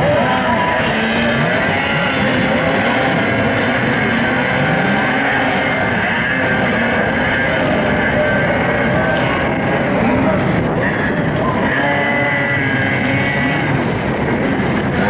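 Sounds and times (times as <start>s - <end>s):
snowmobile engines revving: 0.0s - 15.0s.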